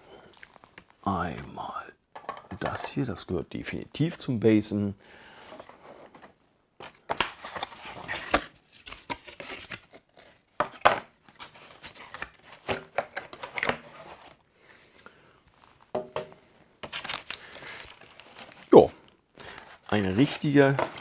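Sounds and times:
cardboard and plastic handling: 0:05.6 - 0:14.4, 0:15.7 - 0:18.8, 0:19.4 - 0:21.0.

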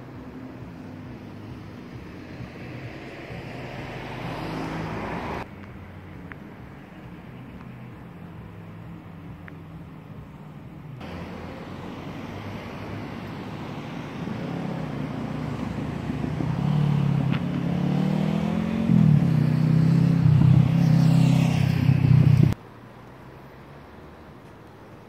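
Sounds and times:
vehicle engine approaching: 0:00.0 - 0:22.6.

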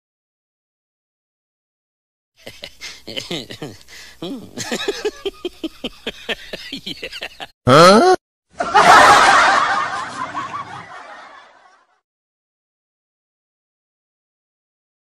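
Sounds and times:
snickering laughter: 0:02.4 - 0:07.8, 0:08.6 - 0:11.8.

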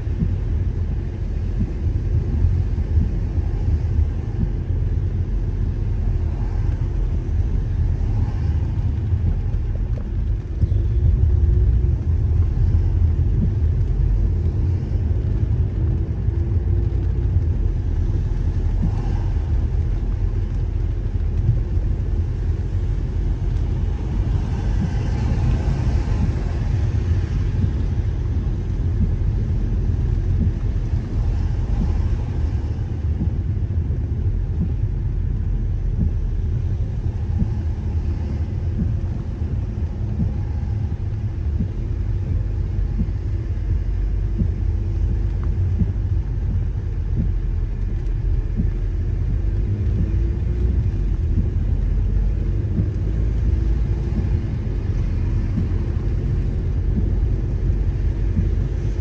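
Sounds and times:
car engine rumble: 0:00.0 - 0:59.0
tyres on wet road: 0:00.0 - 0:59.0
light ticks: 0:35.9 - 0:59.0.

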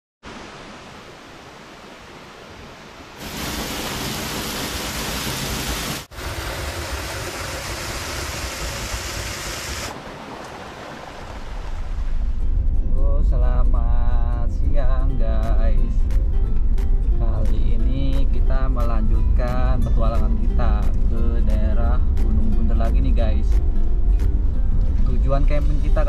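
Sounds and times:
waterfall splashing into pool: 0:00.2 - 0:12.1.

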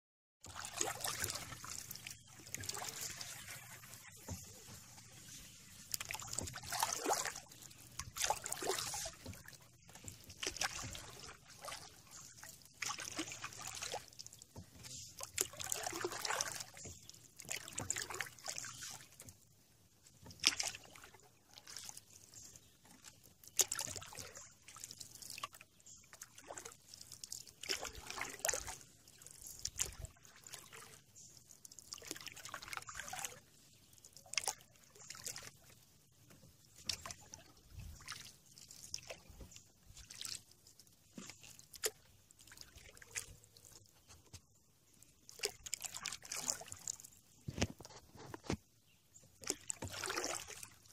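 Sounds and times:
water dripping off paddle: 0:00.4 - 0:19.4, 0:20.2 - 0:33.4, 0:49.4 - 0:50.7
paddle swishing in water: 0:00.4 - 0:50.9.

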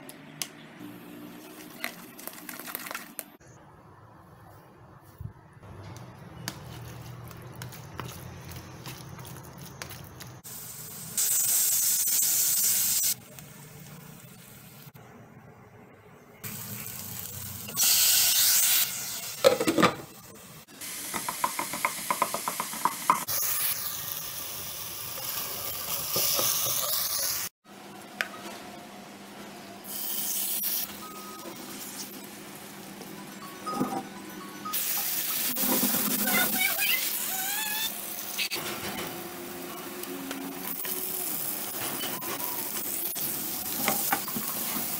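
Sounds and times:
hot oil sizzling: 0:06.6 - 0:14.9, 0:16.4 - 0:27.6, 0:29.8 - 0:32.8, 0:34.7 - 0:44.9.

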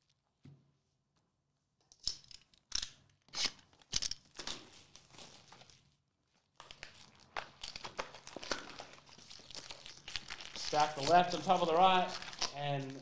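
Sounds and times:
shrink wrap crinkling and tearing: 0:03.4 - 0:13.0
foil packs crinkling: 0:04.3 - 0:13.0.

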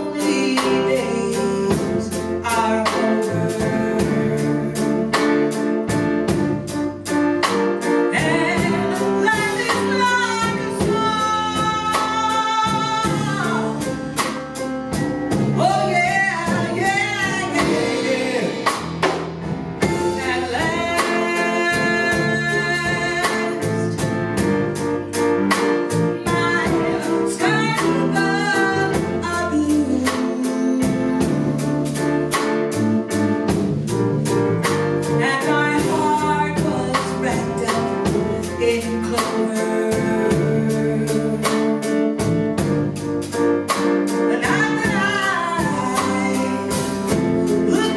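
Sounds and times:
woman singing with vibrato: 0:00.0 - 0:05.2, 0:08.1 - 0:14.2, 0:15.6 - 0:18.7, 0:19.8 - 0:24.1, 0:26.2 - 0:31.5, 0:35.2 - 0:41.9, 0:44.2 - 0:47.9
drum kit beat: 0:00.0 - 0:47.9
grand piano: 0:00.0 - 0:47.9
electric bass guitar: 0:01.2 - 0:38.8.

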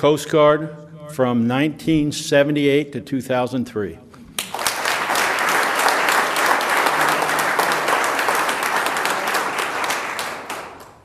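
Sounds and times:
crowd applauding: 0:04.4 - 0:11.0.

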